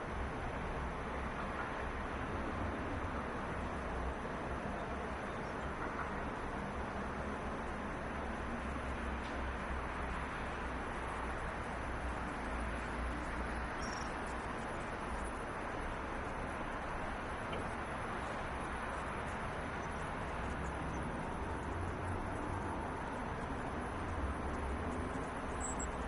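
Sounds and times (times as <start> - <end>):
distant traffic rumble: 0.0 - 26.0
faint high chirp: 13.8 - 14.2, 25.6 - 26.0.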